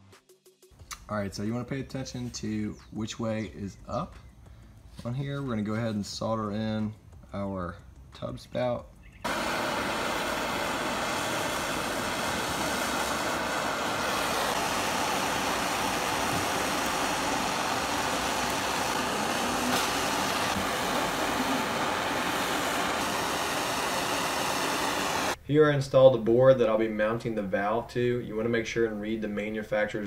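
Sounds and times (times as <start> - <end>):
gas torch hissing: 9.2 - 25.4.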